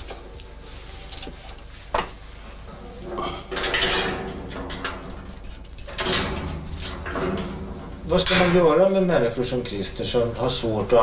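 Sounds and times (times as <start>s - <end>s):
padlock rattling and scraping: 3.6s - 8.6s.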